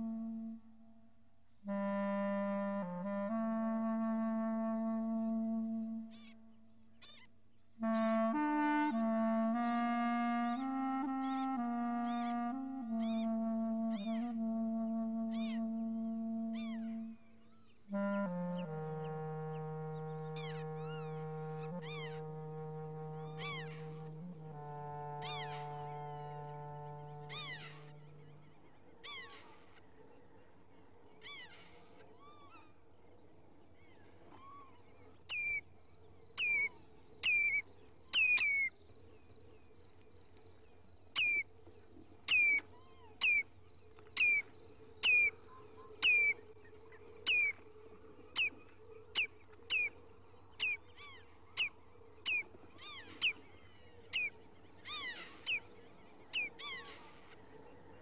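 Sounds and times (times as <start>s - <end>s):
faint steady hum: 0.0s - 58.0s
bird-like chirping calls: 36.4s - 38.7s, 42.3s - 43.4s, 44.2s - 46.4s, 47.2s - 47.6s, 48.4s - 48.6s, 49.2s - 50.0s, 50.6s - 53.4s, 54.1s - 55.7s, 56.3s - 57.1s.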